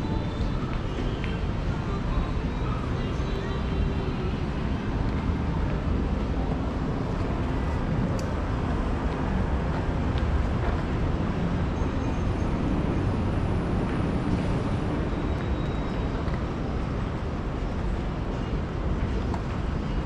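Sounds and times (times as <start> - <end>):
road traffic rumble: 0.0 - 20.0.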